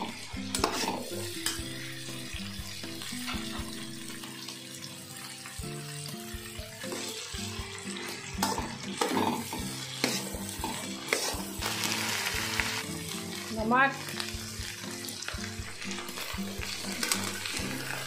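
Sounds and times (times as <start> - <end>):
okra sizzling in hot oil: 0.0 - 18.0
spatula scraping metal pan: 0.4 - 2.0, 8.4 - 12.8.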